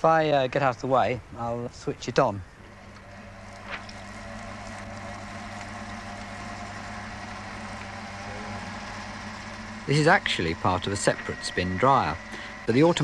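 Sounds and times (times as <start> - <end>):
spin dryer motor humming: 2.6 - 13.0
water hissing from drum: 2.7 - 13.0.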